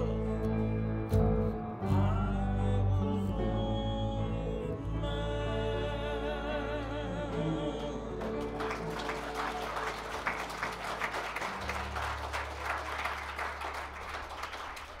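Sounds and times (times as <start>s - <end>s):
low electric bass notes: 0.0s - 14.2s
hand clapping applause: 7.3s - 15.0s.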